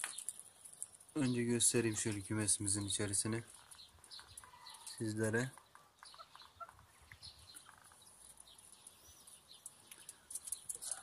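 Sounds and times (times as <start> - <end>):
quail calling: 5.7 - 8.0.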